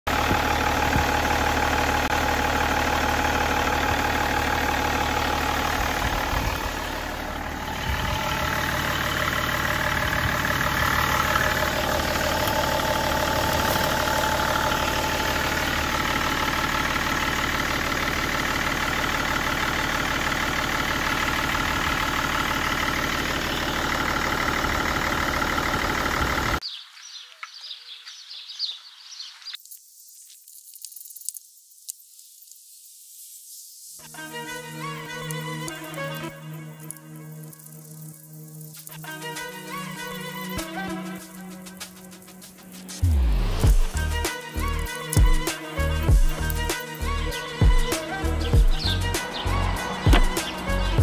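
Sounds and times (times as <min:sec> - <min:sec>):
diesel engine idling: 0:00.1 - 0:26.6, 0:39.5 - 0:51.0.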